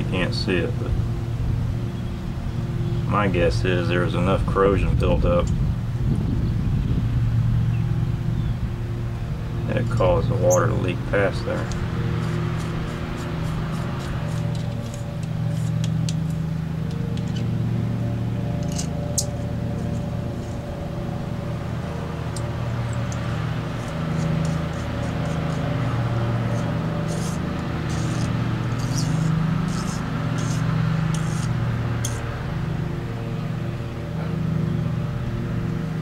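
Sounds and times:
low mechanical hum: 0.0 - 36.0
metallic tool clicks and scrapes: 11.6 - 17.5, 18.6 - 20.6, 22.4 - 32.2.

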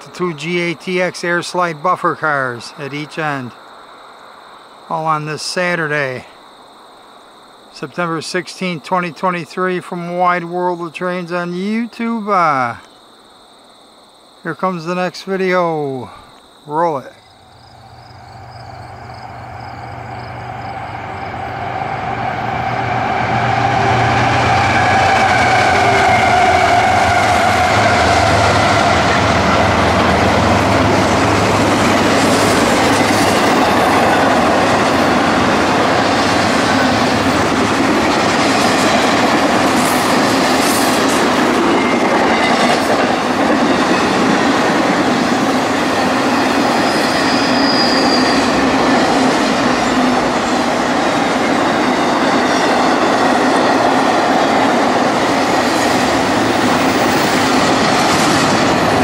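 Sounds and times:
steel wheels on rail: 17.8 - 59.0
high-pitched wheel squeal: 21.3 - 29.1, 46.1 - 49.1.

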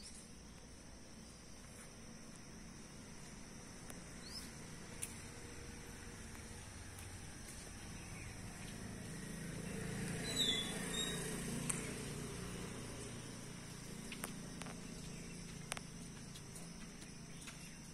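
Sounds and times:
vehicle passing rumble: 4.6 - 16.5.

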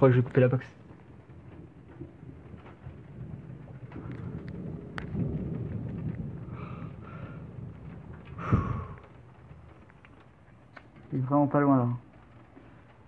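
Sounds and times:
thunder rumbling: 0.0 - 13.0.

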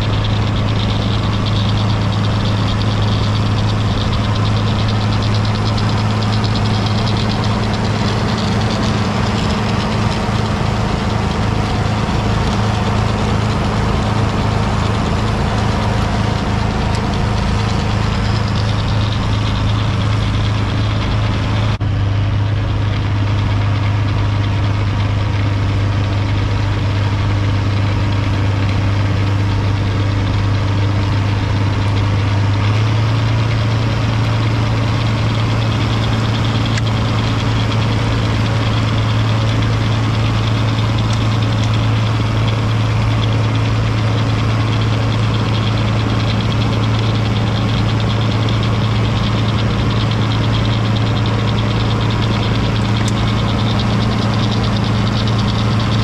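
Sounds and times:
diesel tractor engine drone: 0.0 - 56.0.

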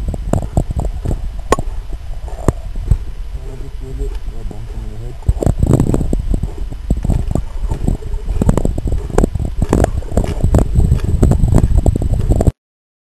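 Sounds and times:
camera handling rumble: 5.1 - 12.5.

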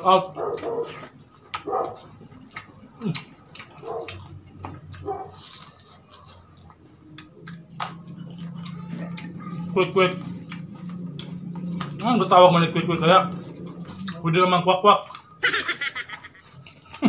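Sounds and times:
low steady hum: 0.0 - 17.0
chewing with lip smacks: 0.3 - 12.6, 13.3 - 14.4, 15.0 - 15.4, 16.1 - 17.0.

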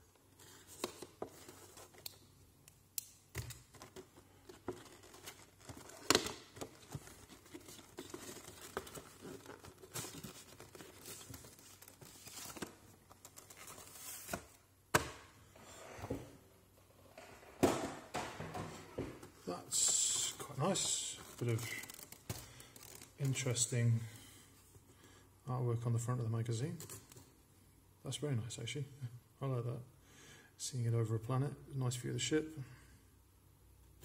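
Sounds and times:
plastic packaging rustling: 3.4 - 14.6, 19.7 - 23.4.

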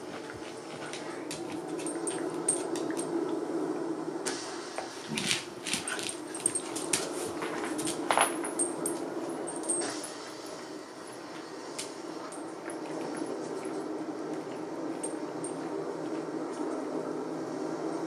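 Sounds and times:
metal chain collars jingling: 5.8 - 11.2.

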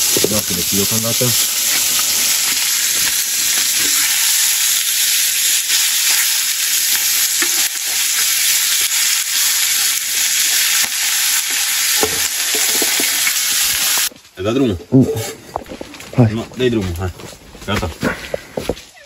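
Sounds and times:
pork sizzling in a frying pan: 0.0 - 14.5.

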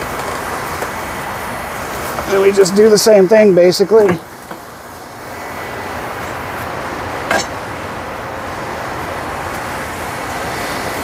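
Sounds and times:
steady rushing noise: 0.0 - 11.0
metal bar clinking on tire changer: 7.2 - 7.7.

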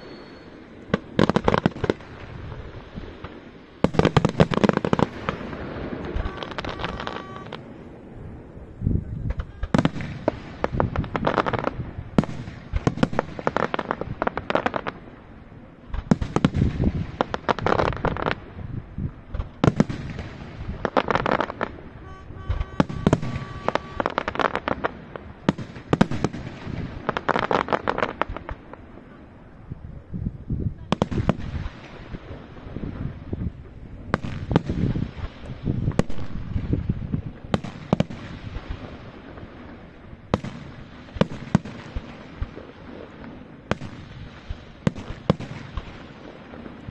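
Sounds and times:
firework bangs: 0.0 - 29.2, 30.7 - 46.9
firework crackling: 0.0 - 46.9.

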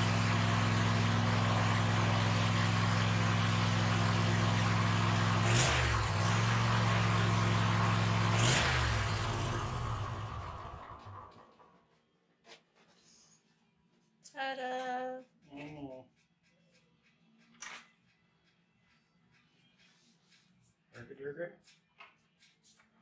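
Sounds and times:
mower engine running: 0.0 - 11.4.

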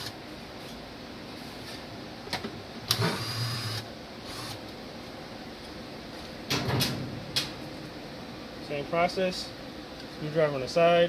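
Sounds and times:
cordless drill whirring: 3.0 - 4.6.

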